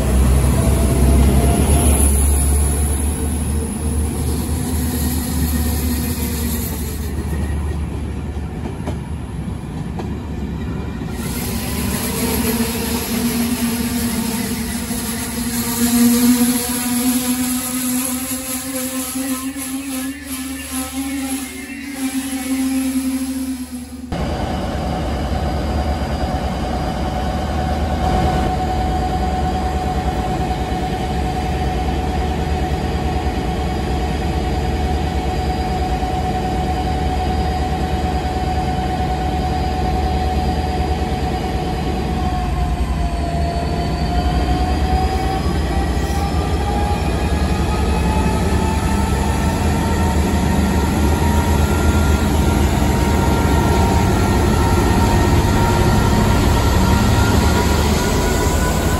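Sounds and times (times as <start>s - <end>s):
diesel locomotive engine rumbling: 0.0s - 58.9s.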